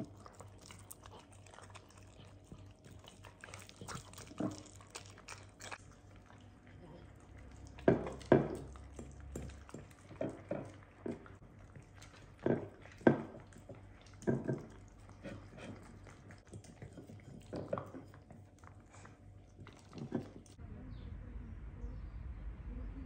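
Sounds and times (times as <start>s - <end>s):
dogs chewing and licking: 0.0s - 20.6s
clicks and knocks on bowls: 7.8s - 11.3s, 12.1s - 14.8s.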